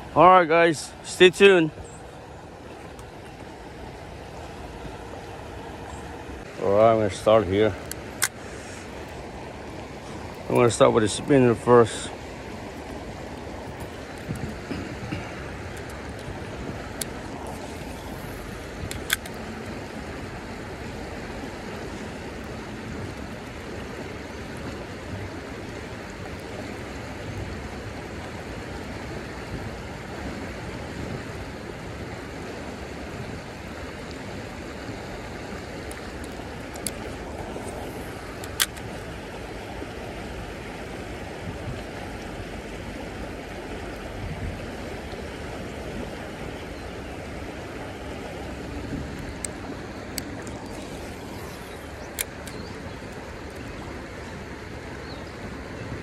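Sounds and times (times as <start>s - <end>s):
sharp clicks: 18.8s - 19.4s, 35.8s - 37.1s, 38.4s - 38.9s, 51.4s - 52.8s.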